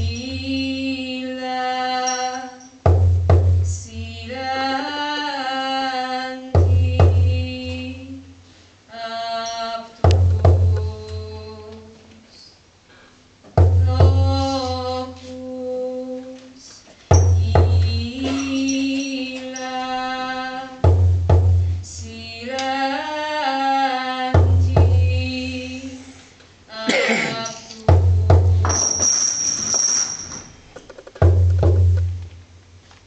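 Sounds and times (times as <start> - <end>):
deep drum strikes: 2.9 - 3.8, 10.1 - 11.0, 13.6 - 14.8, 17.1 - 18.3, 20.8 - 21.7, 24.4 - 25.2, 27.9 - 28.8, 31.2 - 32.2.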